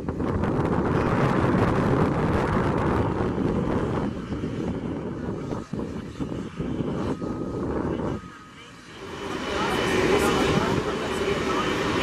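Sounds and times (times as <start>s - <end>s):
aircraft and vehicle engines rumbling: 0.0s - 12.0s
wind on microphone: 0.0s - 12.0s.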